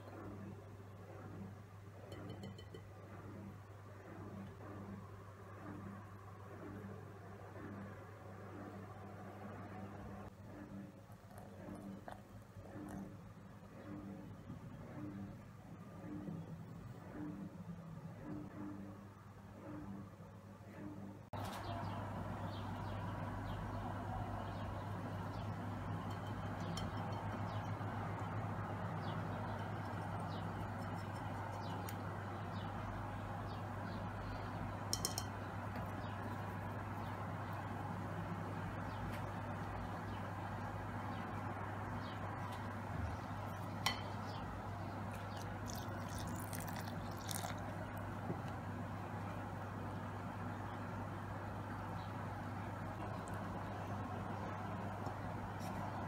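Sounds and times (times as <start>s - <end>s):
steady low hum: 0.0s - 56.0s
glass bowl clink: 2.1s - 2.9s, 26.0s - 27.8s, 34.9s - 35.4s, 43.8s - 44.2s, 45.7s - 47.6s
birds chirping faintly: 21.4s - 56.0s
water splashing into flour: 45.3s - 48.0s.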